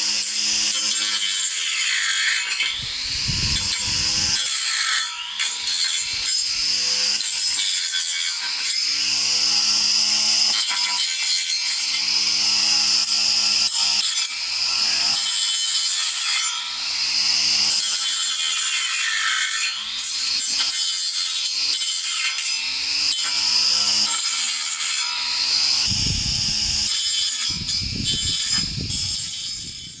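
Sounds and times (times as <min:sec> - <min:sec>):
string trimmer line whirring: 0:00.0 - 0:30.0
low rumbling: 0:25.9 - 0:26.9.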